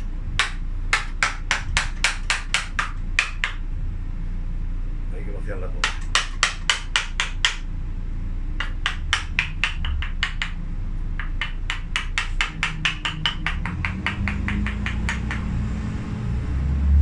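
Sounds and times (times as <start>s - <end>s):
mallet tapping on chisel: 0.4s - 3.6s, 5.8s - 7.7s, 8.6s - 10.6s, 11.2s - 15.6s.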